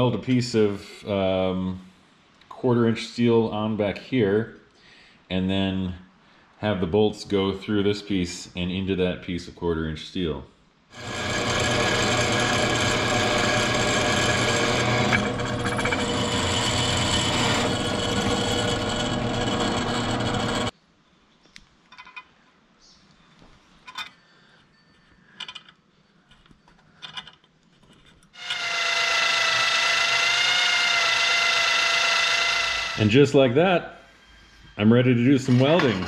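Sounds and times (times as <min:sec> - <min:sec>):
drill press boring through steel: 0:11.0 - 0:20.7, 0:28.4 - 0:33.1, 0:35.4 - 0:36.0
electric drill drilling steel: 0:11.0 - 0:20.7, 0:28.4 - 0:33.1.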